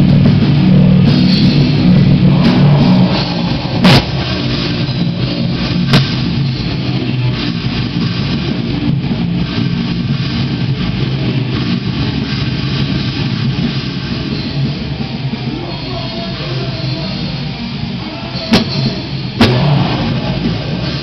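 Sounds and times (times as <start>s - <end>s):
sharp crash: 0.0s - 8.5s, 18.5s - 21.0s
distorted electric guitar: 0.0s - 21.0s.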